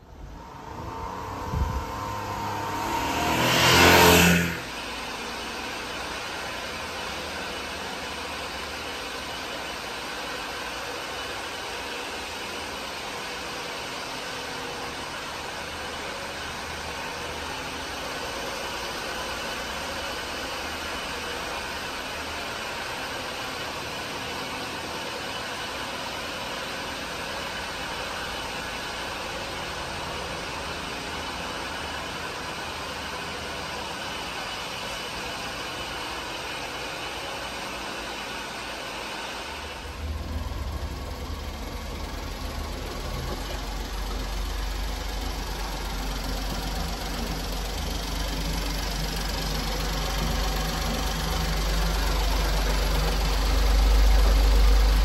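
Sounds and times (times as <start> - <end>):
truck engine revving: 0.0 - 6.2, 39.7 - 55.0
engine idling: 0.0 - 37.4, 39.5 - 55.0.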